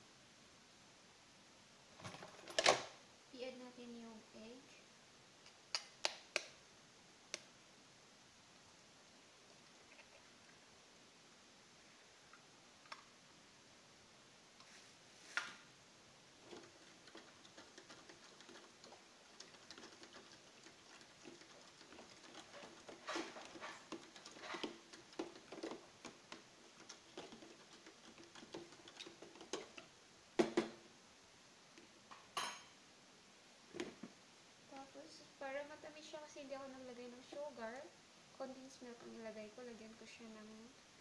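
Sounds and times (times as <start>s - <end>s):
spoon stirring thick batter: 16.4s - 30.0s.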